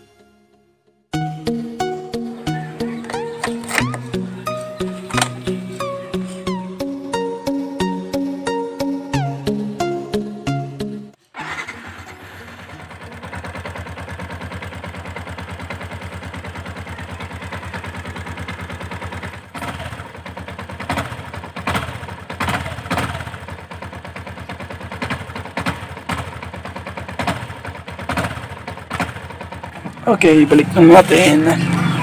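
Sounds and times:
motorcycle engine idling and revving: 0:01.5 - 0:09.8, 0:11.3 - 0:32.0.

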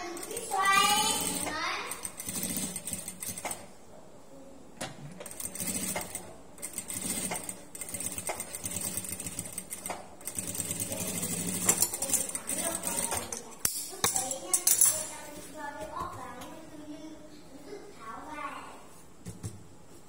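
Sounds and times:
sewing machine stitching: 0:00.0 - 0:03.7, 0:05.2 - 0:13.4.

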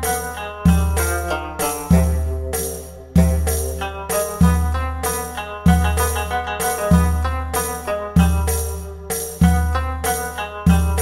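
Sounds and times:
melody of pitched notes: 0:00.0 - 0:11.0.

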